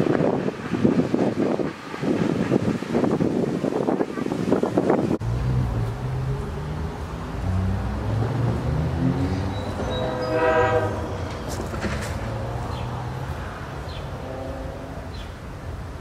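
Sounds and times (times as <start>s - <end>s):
low rumble of train: 0.0s - 16.0s
locomotive horn sounding: 9.5s - 11.3s, 14.1s - 15.1s.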